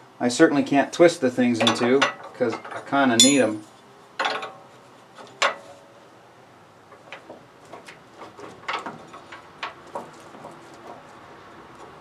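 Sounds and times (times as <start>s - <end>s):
wrenches clinking: 3.2s - 3.6s.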